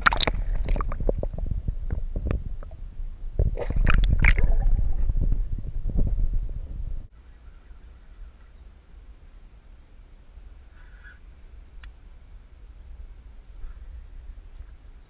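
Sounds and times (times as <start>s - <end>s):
muffled underwater water sloshing: 0.0s - 6.6s.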